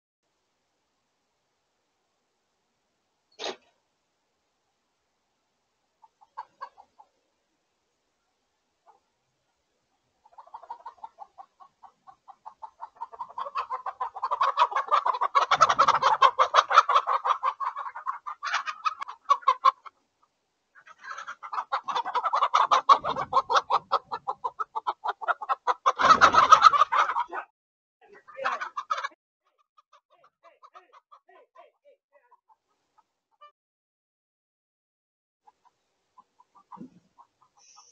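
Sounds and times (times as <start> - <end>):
hens alarm clucking: 6.0 - 7.3, 9.9 - 33.5, 35.4 - 37.9.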